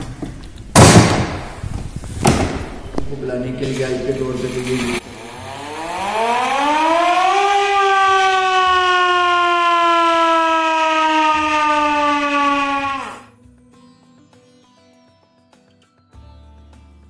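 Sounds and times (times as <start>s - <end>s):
hand-cranked siren wailing: 5.0s - 13.3s.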